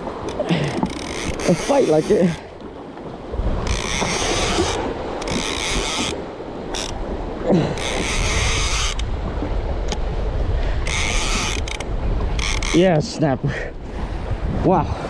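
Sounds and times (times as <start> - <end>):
waves sloshing: 0.0 - 15.0
wind buffeting microphone: 0.0 - 15.0
fishing reel gears whirring: 0.6 - 2.4, 3.6 - 7.0, 7.8 - 9.1, 10.8 - 12.9.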